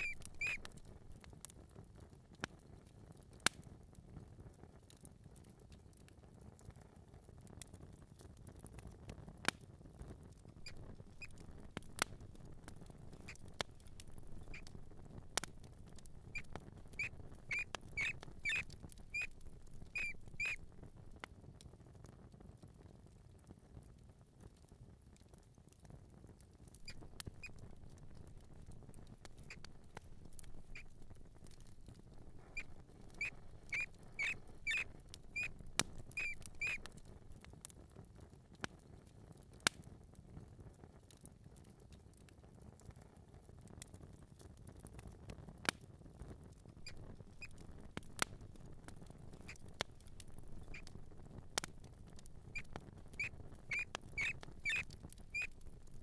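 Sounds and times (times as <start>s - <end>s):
mouse squeaking: 0.0s - 0.8s, 10.6s - 11.4s, 13.1s - 14.8s, 15.4s - 20.7s, 26.8s - 27.7s, 29.3s - 37.0s, 46.8s - 48.2s, 49.3s - 51.0s, 51.6s - 55.6s
low steady hiss: 0.0s - 56.0s.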